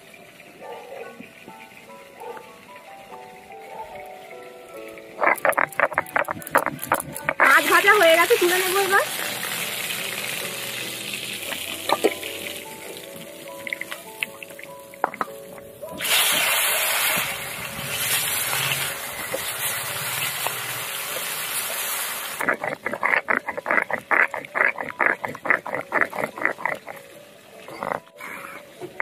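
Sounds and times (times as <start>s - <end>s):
fish sizzling in hot oil: 1.2s - 29.0s
stone roller scraping on grinding stone: 5.2s - 7.8s, 22.4s - 27.0s.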